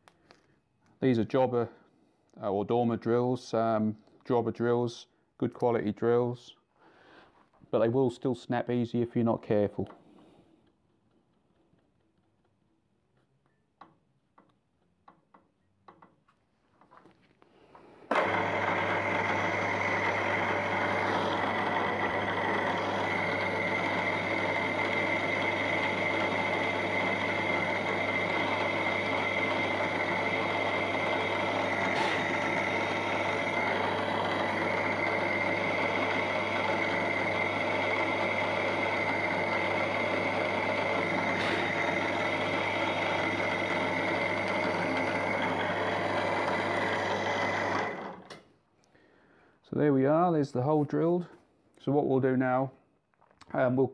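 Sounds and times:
drill bit clicking in chuck: 13.4s - 16.2s, 24.8s - 48.5s
milling machine motor whining: 18.1s - 48.4s.

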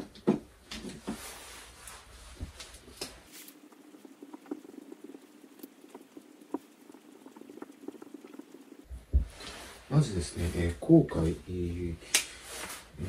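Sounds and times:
marker squeaking on whiteboard: 3.3s - 8.9s.

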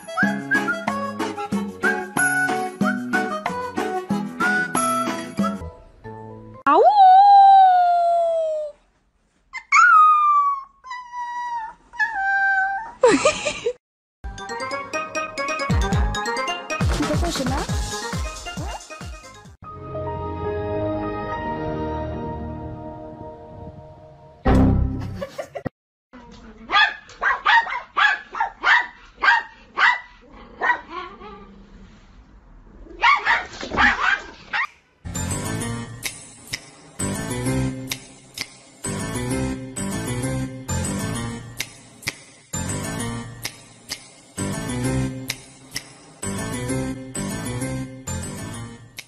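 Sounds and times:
dog whining: 9.6s - 13.0s
dog barking: 26.7s - 31.2s, 33.0s - 34.7s.

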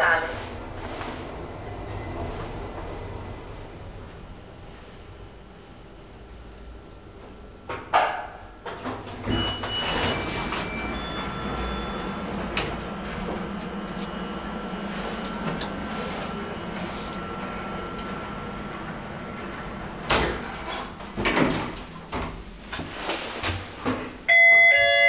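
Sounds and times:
lift hum and rumble: 0.0s - 25.0s
high whine: 10.0s - 20.3s.

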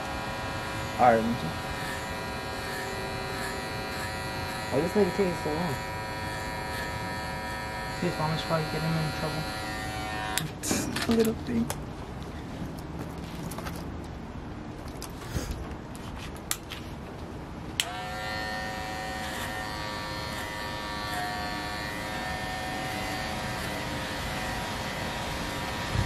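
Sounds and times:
electric hair clippers buzzing: 0.0s - 10.6s, 17.8s - 26.0s.

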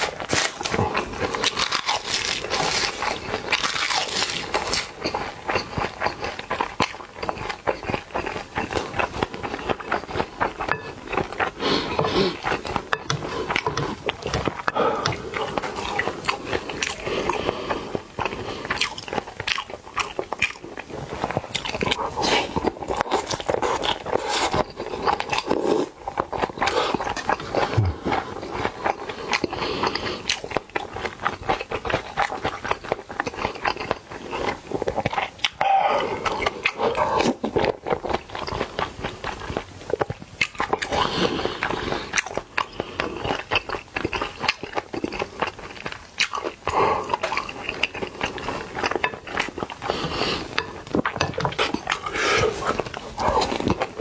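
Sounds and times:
person chewing food: 0.0s - 54.0s.

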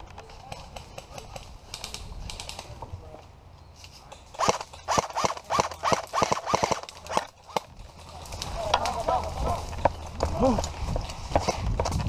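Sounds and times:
rustling of undergrowth: 0.0s - 12.0s
airsoft rifle shots: 4.3s - 7.6s.

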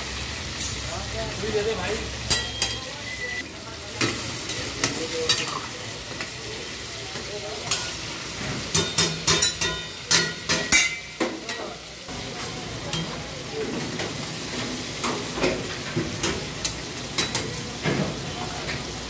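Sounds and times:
chicken sizzling in oil: 0.0s - 19.0s
metal spatulas scraping and clanking: 7.6s - 11.7s.

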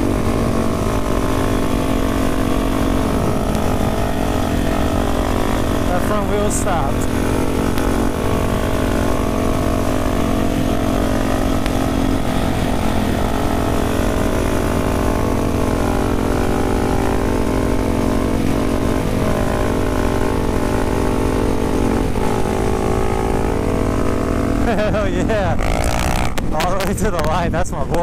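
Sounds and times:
motorcycle engines droning: 0.0s - 28.0s
wind noise on microphone: 2.9s - 4.0s, 25.4s - 28.0s.

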